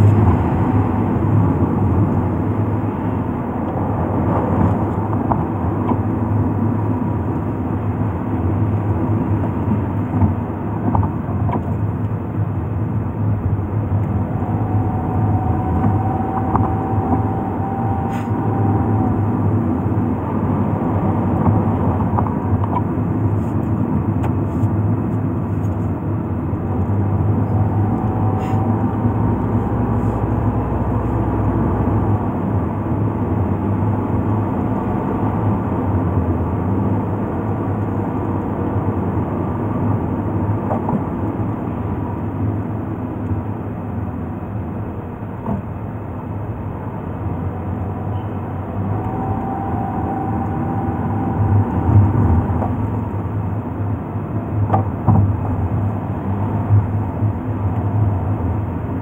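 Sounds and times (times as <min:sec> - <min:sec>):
car engine rumbling: 0:00.0 - 0:59.0.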